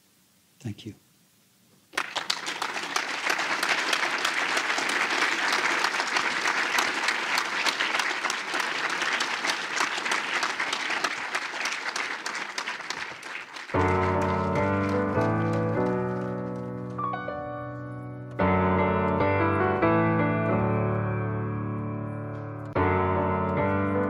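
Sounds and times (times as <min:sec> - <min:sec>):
audience applauding: 0:01.9 - 0:17.3
music: 0:13.8 - 0:24.0.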